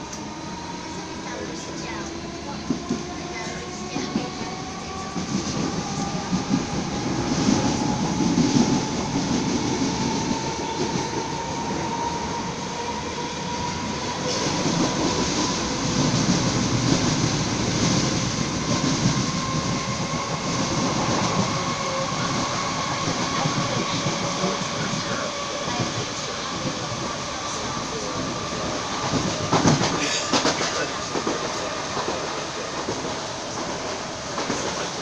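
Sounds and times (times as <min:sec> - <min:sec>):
train wheels clickety-clack: 0:13.4 - 0:35.0.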